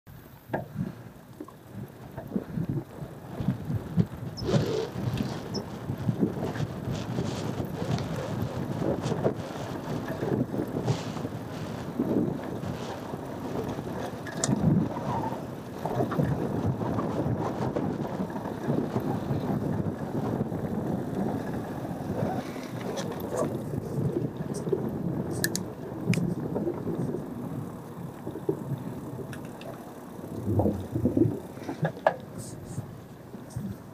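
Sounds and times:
wind noise on microphone: 0:00.2 - 0:33.9
bike knocks and rattles over bumps: 0:00.4 - 0:33.9
tyres rolling over dirt: 0:00.6 - 0:33.9
sharp clicks: 0:25.3 - 0:26.3.

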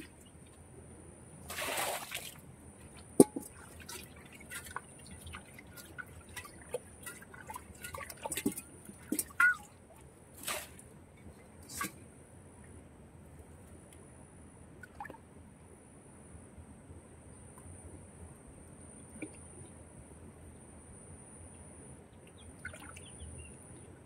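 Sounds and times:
splashes and squelches in mud: 0:01.5 - 0:10.8, 0:22.6 - 0:23.1.

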